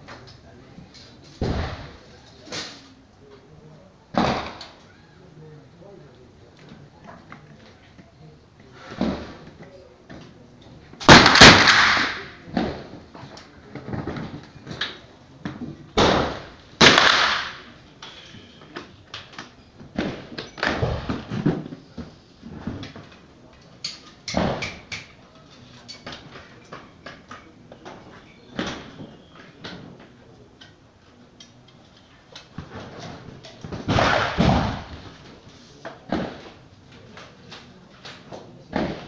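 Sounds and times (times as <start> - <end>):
rifle shots echoing: 11.0 - 12.3, 16.0 - 17.7, 33.8 - 35.1.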